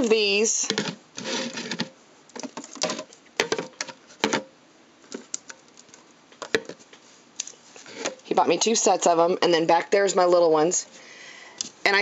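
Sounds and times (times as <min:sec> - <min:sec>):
containers clicking and tapping: 0:00.0 - 0:04.5, 0:05.1 - 0:06.8.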